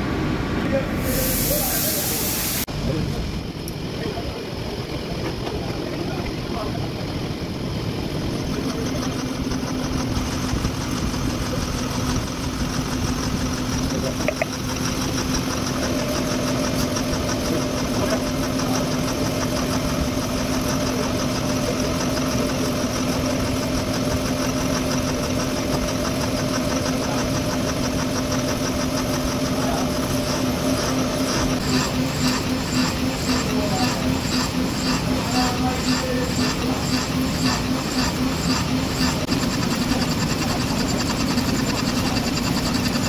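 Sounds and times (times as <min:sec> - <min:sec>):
machining hum: 0:00.0 - 0:43.0
higher machining tone: 0:15.6 - 0:43.0.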